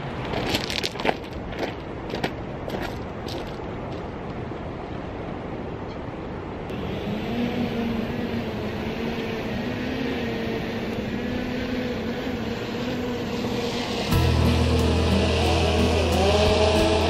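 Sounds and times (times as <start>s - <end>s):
drone propellers humming: 6.7s - 17.0s
background music: 14.0s - 17.0s.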